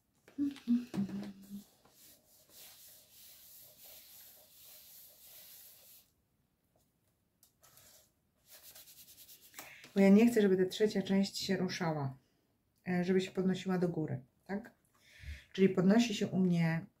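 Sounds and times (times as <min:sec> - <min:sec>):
palms rustling over paper: 0:00.2 - 0:06.1, 0:06.7 - 0:10.4.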